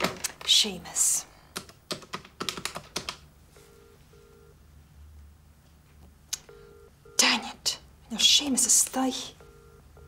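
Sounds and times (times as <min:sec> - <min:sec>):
telephone ringing tone: 0:03.6 - 0:04.6, 0:06.5 - 0:07.3, 0:09.3 - 0:10.0.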